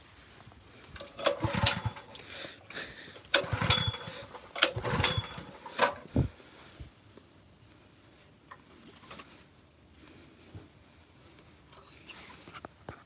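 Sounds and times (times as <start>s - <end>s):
recoil starter cranking engine: 1.0s - 6.3s.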